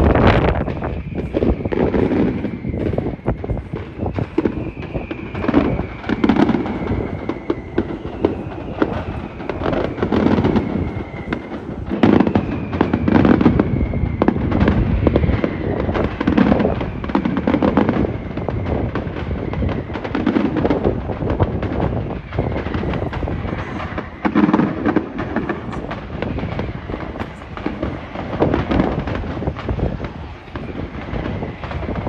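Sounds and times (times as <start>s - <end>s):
high falling whistles: 0.0s - 20.6s
firecrackers banging: 0.0s - 32.0s.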